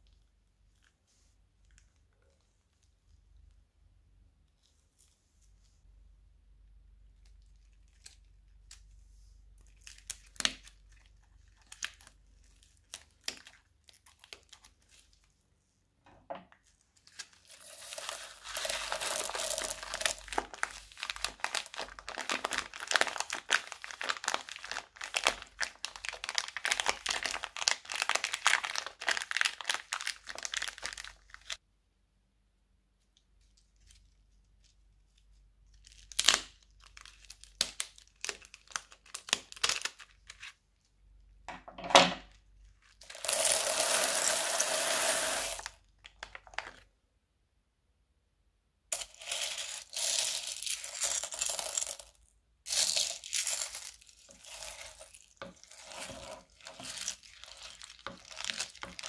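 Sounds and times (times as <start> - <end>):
plastic bag crinkling: 16.6 - 31.6, 42.8 - 46.8, 49.0 - 59.0.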